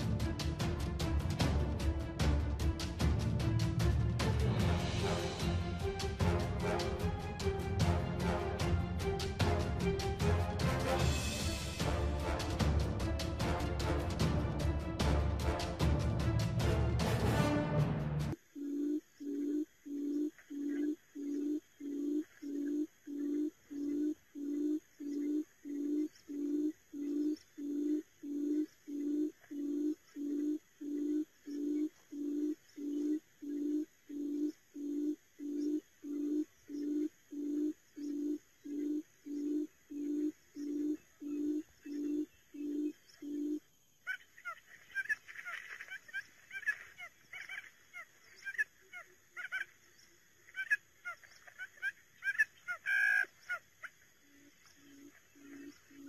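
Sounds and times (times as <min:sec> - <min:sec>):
high chirps and ticks: 0:18.6 - 0:56.0
quail lure call hooting: 0:18.7 - 0:49.7, 0:50.5 - 0:53.9.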